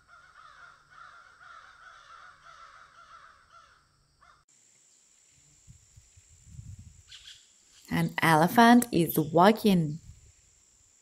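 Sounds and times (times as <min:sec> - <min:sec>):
flock of birds calling: 0:00.0 - 0:03.8.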